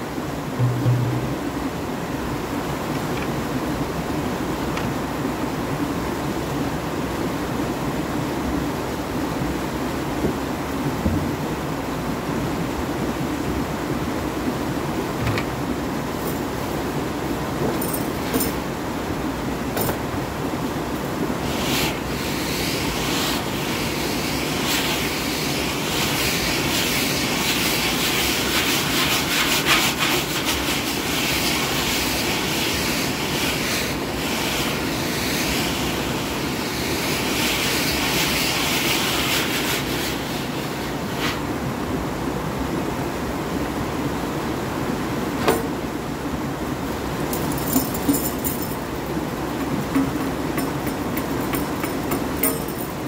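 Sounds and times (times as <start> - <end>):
sharp knock: 0.6 - 1.5
quick tapping and rubbing: 49.5 - 52.8.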